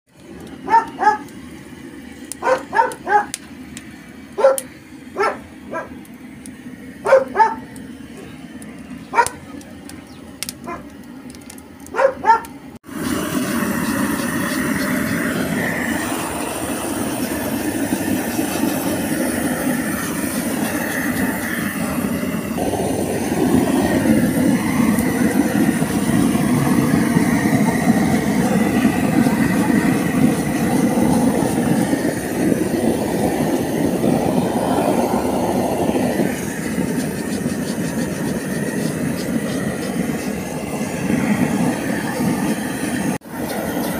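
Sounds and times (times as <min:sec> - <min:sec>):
gas torch burning: 0:00.1 - 0:43.9
dog barking: 0:00.6 - 0:01.3, 0:02.4 - 0:03.4, 0:04.4 - 0:06.0, 0:07.0 - 0:08.3, 0:09.1 - 0:09.4, 0:10.6 - 0:10.9, 0:11.9 - 0:12.5.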